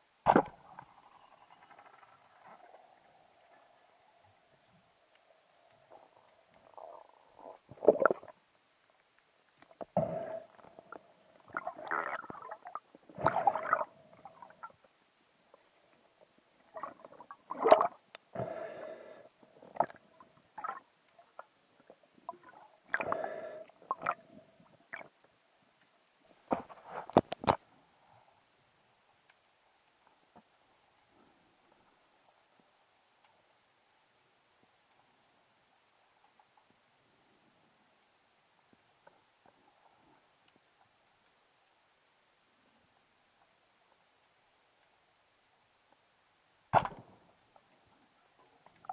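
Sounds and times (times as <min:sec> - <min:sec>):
muffled underwater knocks and scrapes: 0:26.4 - 0:27.6
sharp click: 0:46.7 - 0:47.1.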